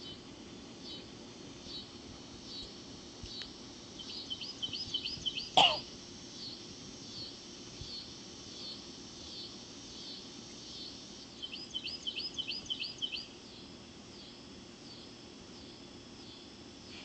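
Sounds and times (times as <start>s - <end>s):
low background noise: 0.0s - 17.0s
songbird chirping: 2.5s - 5.6s, 6.4s - 15.2s.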